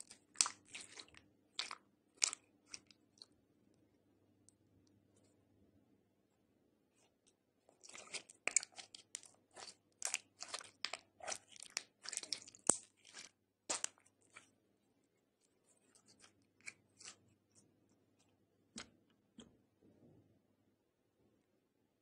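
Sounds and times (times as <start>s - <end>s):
slime crackling and popping: 0.0s - 2.9s, 7.8s - 14.4s.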